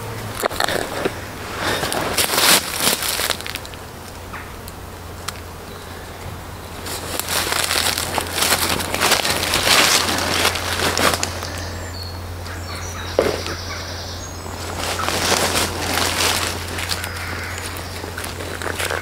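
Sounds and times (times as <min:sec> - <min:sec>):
rustling of leaf litter: 0:00.0 - 0:19.0
faint bird chirps: 0:11.3 - 0:15.1.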